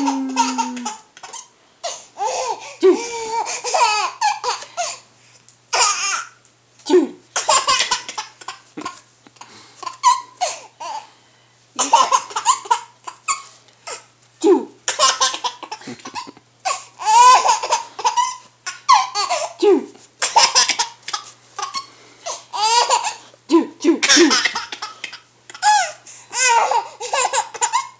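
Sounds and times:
baby laughing: 0:00.0 - 0:04.7, 0:07.4 - 0:09.0, 0:11.8 - 0:14.0, 0:14.9 - 0:19.6, 0:20.2 - 0:23.2, 0:24.0 - 0:27.9.

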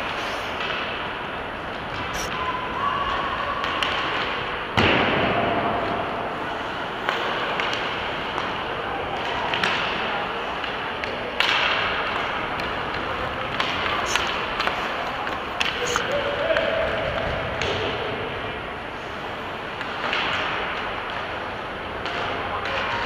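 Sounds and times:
stick and puck clicks: 0:07.0 - 0:17.9
skates scraping ice: 0:11.4 - 0:16.6.

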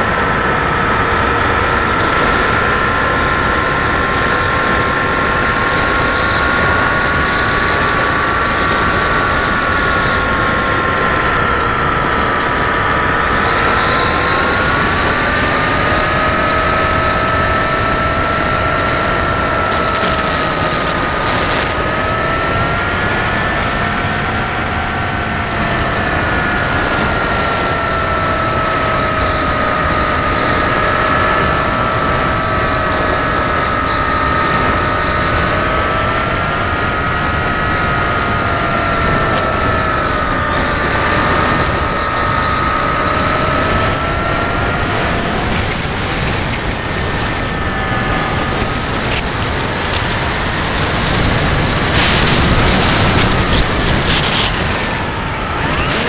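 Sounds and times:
electric motor propeller whine: 0:00.0 - 0:56.0
rushing airflow: 0:44.6 - 0:56.0.

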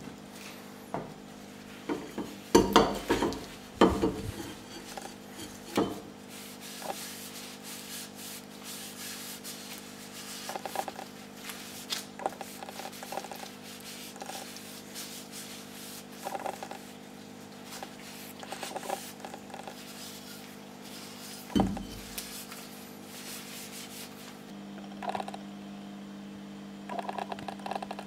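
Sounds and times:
steady low hum: 0:00.0 - 0:28.0
gloved hands rubbing on cleaver: 0:04.3 - 0:24.4.

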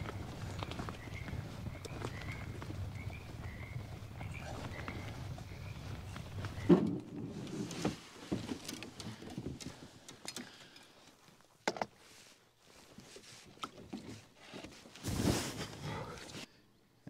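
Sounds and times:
knocks and thuds: 0:06.6 - 0:08.6.

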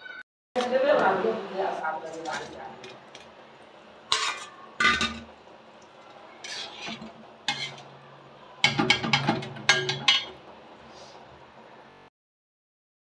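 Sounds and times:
metal ladle clinking on pan: 0:04.1 - 0:05.3, 0:06.5 - 0:07.9, 0:08.6 - 0:10.4.

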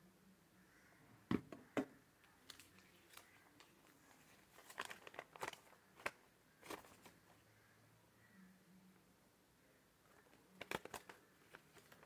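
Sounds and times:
paper leaflet crinkling: 0:02.3 - 0:07.2, 0:10.1 - 0:12.0.

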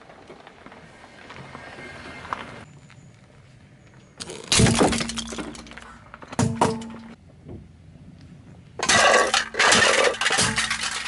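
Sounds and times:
plastic toys cracking and crunching: 0:08.8 - 0:11.0.

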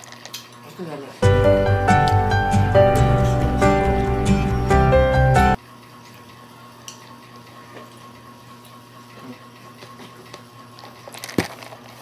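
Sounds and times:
background music: 0:01.2 - 0:05.6.

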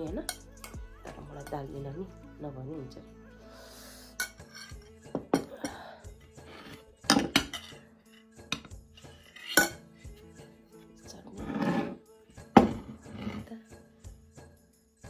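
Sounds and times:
metal spoon clinking on ceramic: 0:04.2 - 0:05.5, 0:07.1 - 0:09.9.

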